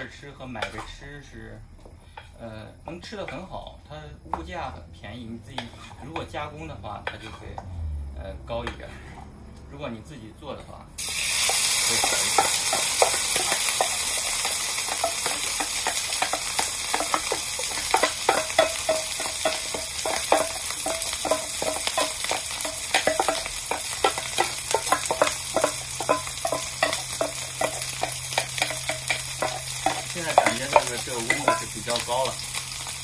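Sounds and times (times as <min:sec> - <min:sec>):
oil sizzling in a wok: 0:00.0 - 0:09.6, 0:11.0 - 0:33.0
wooden spatula scraping a pot: 0:05.4 - 0:06.4, 0:07.0 - 0:07.6, 0:12.0 - 0:32.0.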